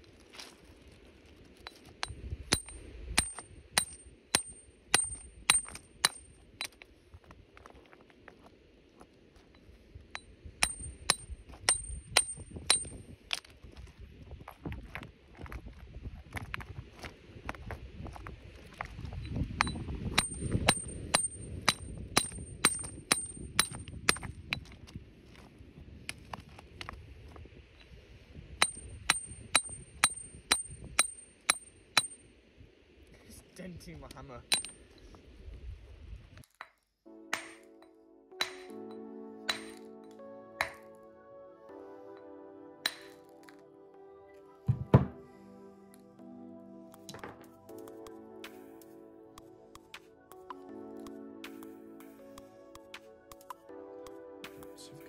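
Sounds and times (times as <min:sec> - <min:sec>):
hammer striking rock: 0:02.0 - 0:06.8, 0:10.6 - 0:13.5, 0:19.6 - 0:24.3, 0:28.6 - 0:32.2, 0:34.5 - 0:34.8, 0:37.3 - 0:37.7, 0:38.4 - 0:38.8, 0:39.5 - 0:39.8, 0:40.6 - 0:40.8, 0:42.9 - 0:43.2
faint knock: 0:44.7 - 0:45.2.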